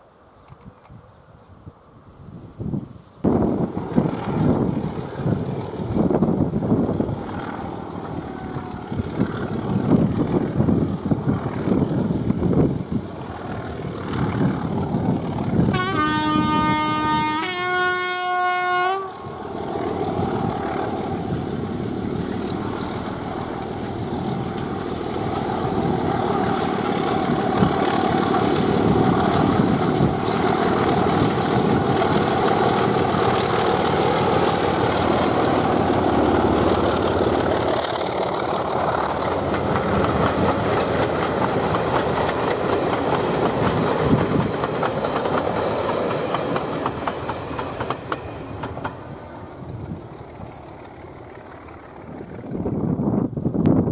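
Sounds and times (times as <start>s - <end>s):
wind buffeting microphone: 0.5s - 17.3s, 19.2s - 53.9s
diesel locomotive engine: 1.7s - 53.9s
two-tone locomotive horn: 15.7s - 19.4s.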